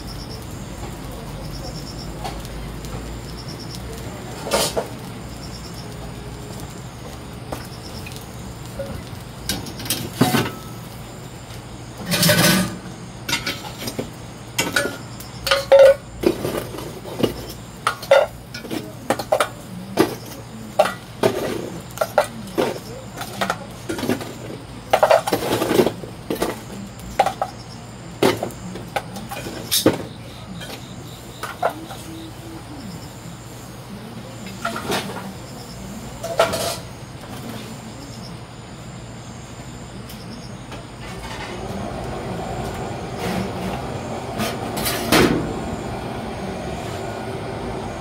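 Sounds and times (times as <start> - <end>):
charcoal lumps clinking: 7.4 - 11.1, 11.9 - 27.6.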